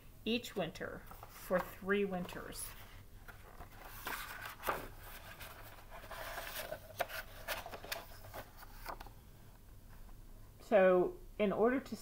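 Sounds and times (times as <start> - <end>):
paper pages rustling: 1.0 - 9.2.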